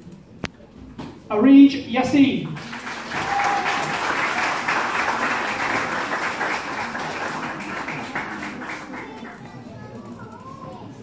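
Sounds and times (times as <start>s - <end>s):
audience applauding: 2.6s - 9.7s.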